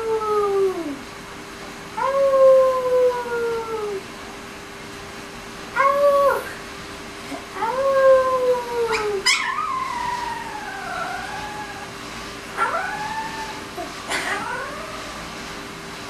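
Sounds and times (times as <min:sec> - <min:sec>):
puppy howling: 0:00.0 - 0:01.0, 0:02.0 - 0:04.0, 0:05.8 - 0:06.6, 0:07.5 - 0:15.2.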